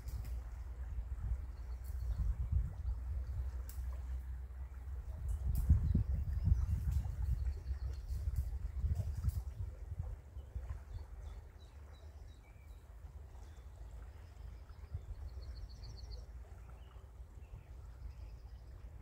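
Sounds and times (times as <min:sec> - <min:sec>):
wind buffeting microphone: 0:00.0 - 0:11.4.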